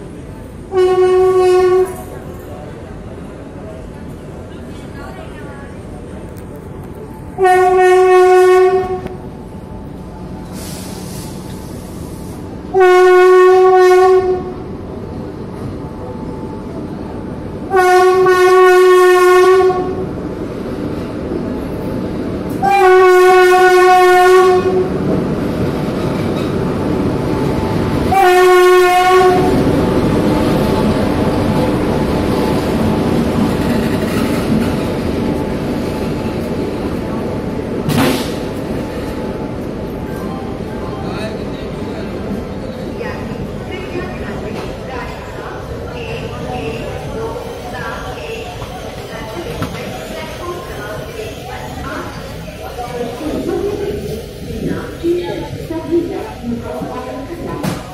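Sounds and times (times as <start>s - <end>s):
train coaches rumbling past: 0.0s - 57.9s
locomotive horn blasts: 0.7s - 2.1s, 7.4s - 9.2s, 12.7s - 14.7s, 17.7s - 20.1s, 22.6s - 24.9s, 28.1s - 29.6s.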